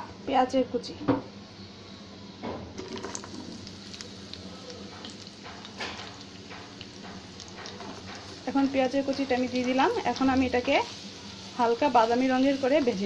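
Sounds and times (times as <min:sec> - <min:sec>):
onions sizzling in a pan: 0:01.5 - 0:13.0.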